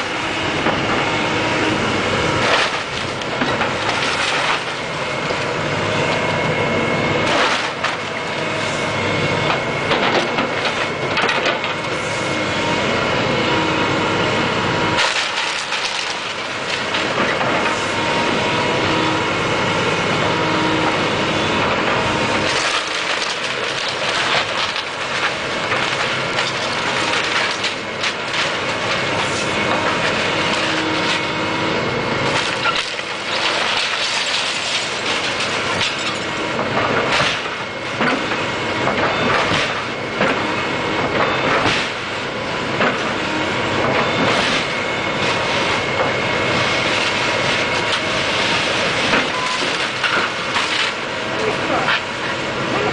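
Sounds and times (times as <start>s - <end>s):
excavator engine whining: 0.0s - 52.9s
wood cracking and splintering: 2.3s - 6.2s, 7.2s - 8.6s, 15.0s - 17.9s, 21.6s - 31.4s, 32.2s - 42.2s, 43.8s - 52.1s
debris clattering: 2.4s - 4.8s, 7.2s - 8.2s, 15.0s - 17.8s, 22.4s - 31.2s, 32.2s - 40.4s.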